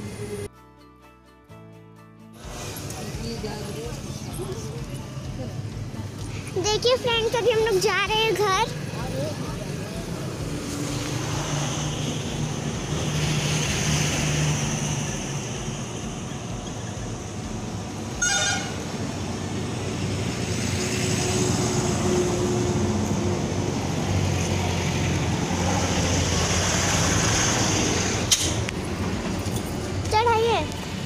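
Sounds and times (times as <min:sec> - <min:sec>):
traffic engine hum: 0:00.0 - 0:00.5, 0:02.4 - 0:31.0
vehicle horn toot: 0:18.2 - 0:18.9.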